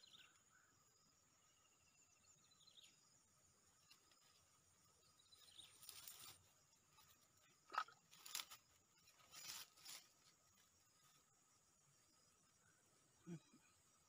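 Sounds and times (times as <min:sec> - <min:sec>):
dry grass rustling and crunching: 0:05.4 - 0:07.1, 0:07.7 - 0:11.2.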